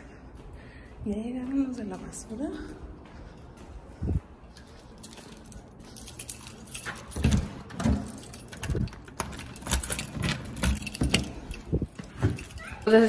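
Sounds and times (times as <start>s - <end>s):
keys jangling: 4.4s - 13.0s
keys clicking in lock: 4.5s - 13.0s.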